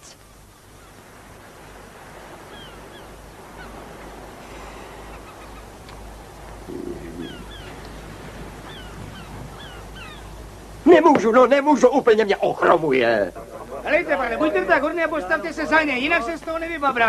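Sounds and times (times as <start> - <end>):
small birds chirping: 0.0 - 10.9
steady low hum: 0.0 - 17.0.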